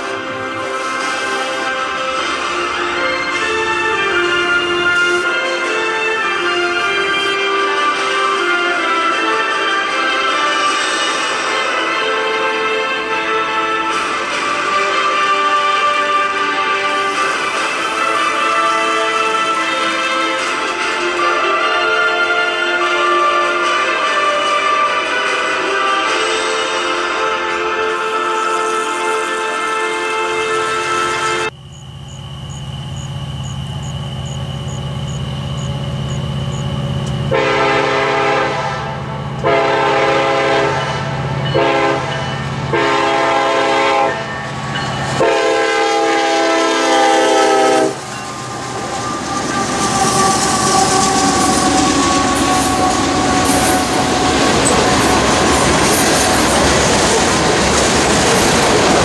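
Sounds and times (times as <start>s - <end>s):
train horn blasts: 0.0s - 31.6s, 35.0s - 59.0s
diesel locomotive rumble: 31.5s - 59.0s
wheels clattering on rails: 47.9s - 59.0s
wheel squeal: 48.0s - 56.6s.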